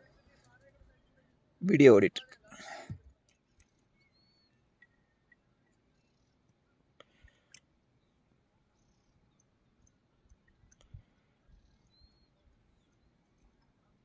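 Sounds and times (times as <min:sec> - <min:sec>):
soft clicks: 0:09.3 - 0:11.1.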